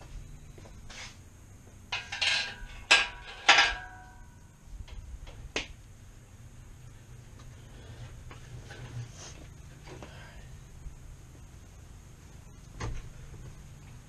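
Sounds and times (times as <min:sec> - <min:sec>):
metal clanks with ringing: 0:01.9 - 0:04.4.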